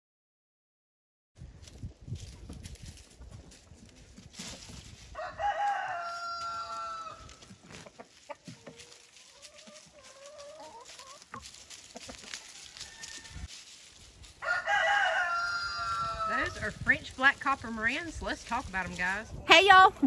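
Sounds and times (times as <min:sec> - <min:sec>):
rooster crowing: 0:05.1 - 0:07.4, 0:12.4 - 0:13.5, 0:14.4 - 0:16.6
wavering chicken call: 0:05.2 - 0:07.3, 0:14.4 - 0:16.5.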